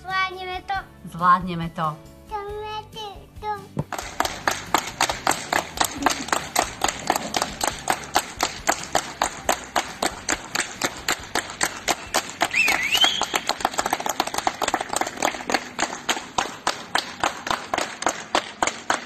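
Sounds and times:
group clapping in rhythm: 3.8s - 19.0s.

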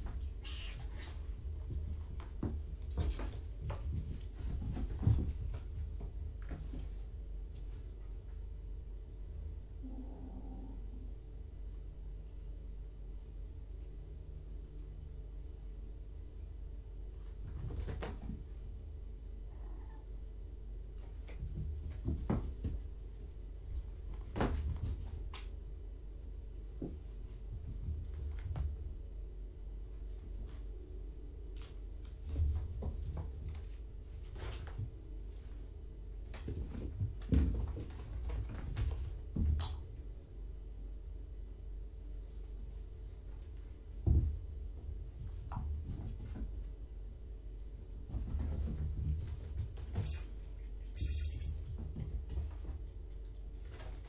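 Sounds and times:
kittens' paws thumping: 0.0s - 7.9s, 21.0s - 23.0s
steady low hum: 0.0s - 37.3s, 39.0s - 54.0s
low hum: 7.0s - 17.4s.

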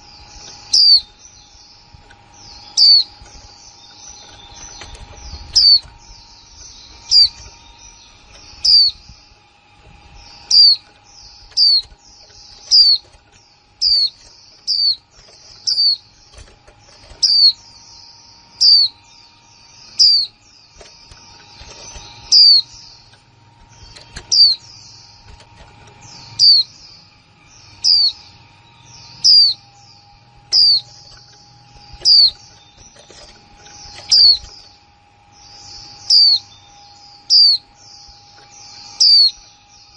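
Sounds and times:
birds twittering faintly: 0.0s - 39.9s
bird giving sharp calls: 30.5s - 33.0s, 35.5s - 36.5s.

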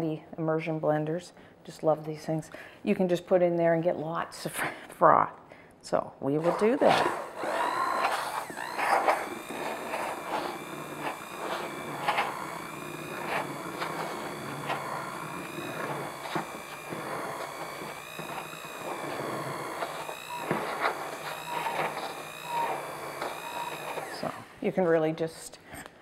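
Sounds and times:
immersion blender motor whine: 6.4s - 24.7s.

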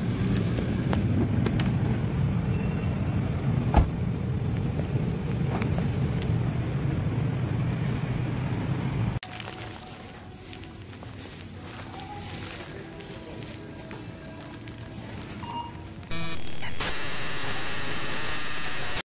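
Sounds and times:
car road and engine rumble: 0.0s - 16.1s
sharp thump: 3.7s - 4.0s.

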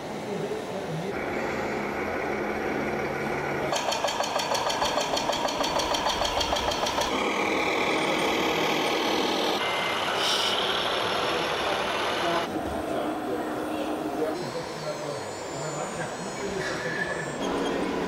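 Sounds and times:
model truck engine running: 1.1s - 12.5s.

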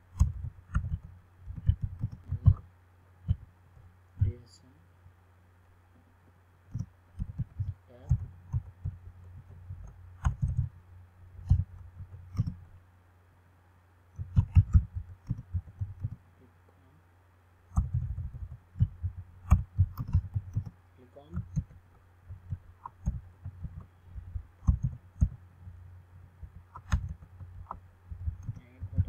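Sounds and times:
steady low hum: 0.0s - 29.0s
keyboard typing: 0.1s - 2.6s, 3.2s - 4.3s, 6.7s - 10.7s, 11.3s - 12.7s, 14.2s - 16.2s, 17.7s - 25.8s, 26.4s - 29.0s.

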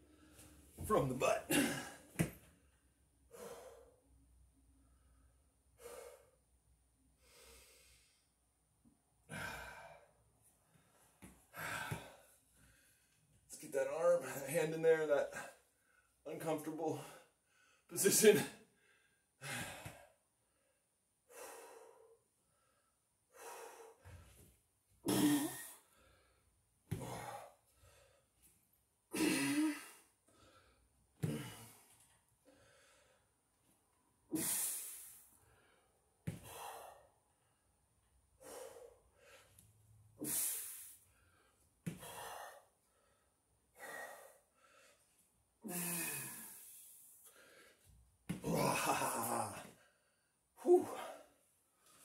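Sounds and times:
man breathing hard: 3.2s - 6.5s, 7.2s - 8.4s, 9.2s - 13.2s, 18.8s - 24.4s, 25.6s - 28.3s, 29.2s - 33.4s, 34.4s - 37.6s, 38.3s - 48.0s.

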